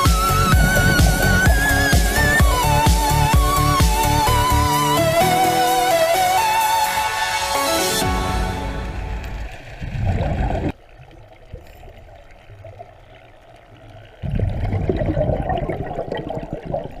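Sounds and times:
underwater air bubbling: 0.0s - 4.9s, 9.3s - 17.0s.

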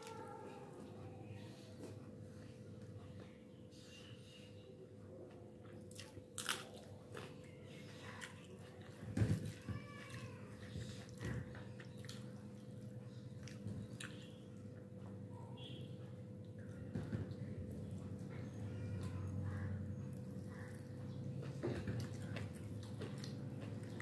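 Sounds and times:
chewing: 5.6s - 14.3s, 19.0s - 24.0s.

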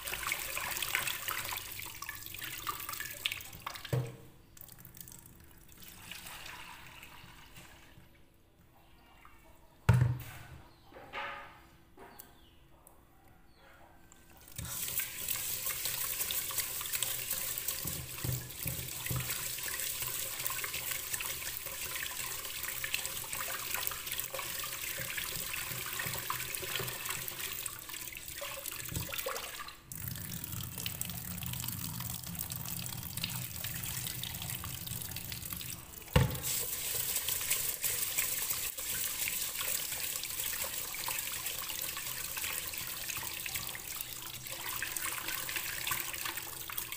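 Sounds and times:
tap water splashing into pot: 2.8s - 5.2s, 14.6s - 22.0s, 22.7s - 31.3s, 33.2s - 41.2s.

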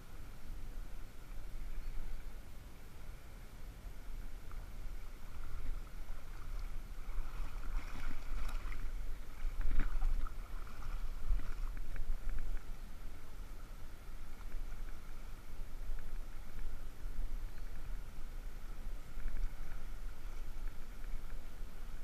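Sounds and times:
wind rumbling on microphone: 0.0s - 22.0s
shallow seawater lapping: 4.4s - 22.0s
small ticks and splashes: 4.5s - 12.8s.

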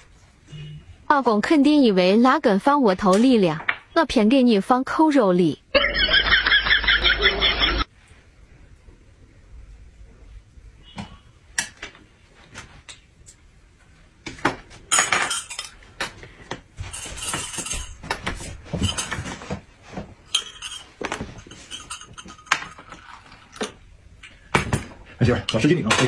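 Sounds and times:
tableware clicks: 14.9s - 16.2s, 20.3s - 23.8s
spoon clinking against glass cup: 20.3s - 20.9s, 21.5s - 22.9s.

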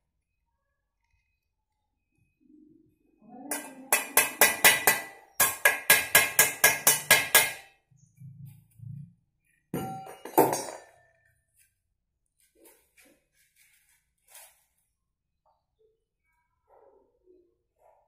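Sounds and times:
metal tool clanging on steel: 9.8s - 10.9s.

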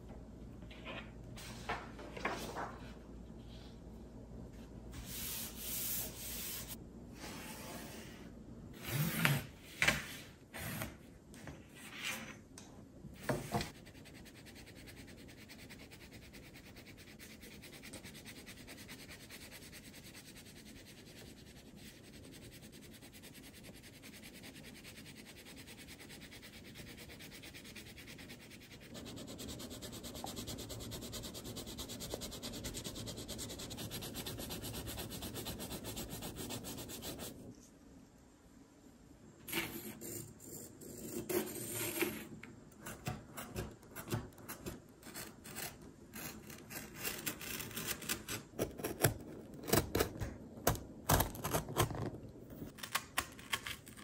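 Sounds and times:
crayon scribbling on paper: 13.7s - 37.4s.

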